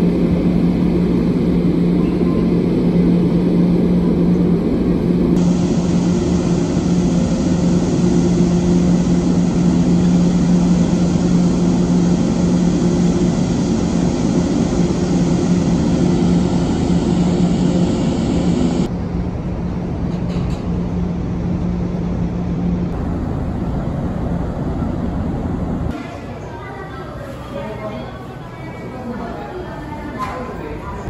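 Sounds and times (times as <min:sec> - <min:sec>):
ferry engines droning: 0:00.0 - 0:31.0.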